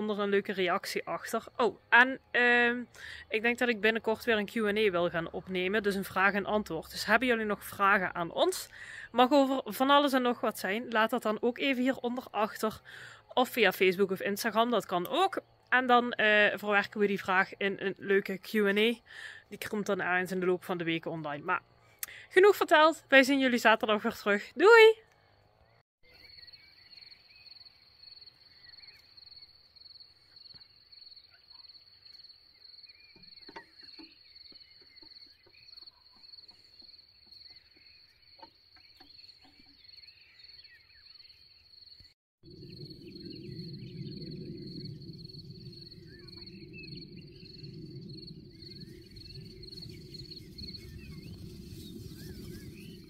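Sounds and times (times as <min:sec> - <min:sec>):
insects chirping: 0:26.2 - 0:53.0
low rumbling noise: 0:42.4 - 0:53.0.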